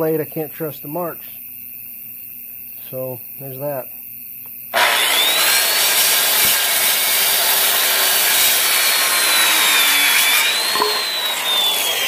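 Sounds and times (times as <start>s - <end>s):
circular saw cutting wood: 4.7s - 12.0s.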